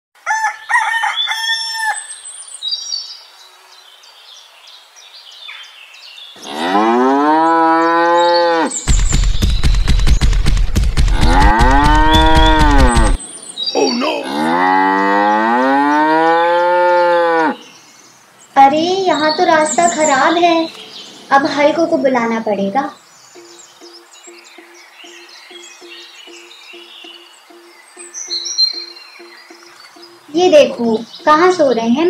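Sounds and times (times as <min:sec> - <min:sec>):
cows mooing: 0:06.4 - 0:08.8, 0:11.1 - 0:13.2, 0:14.2 - 0:17.6.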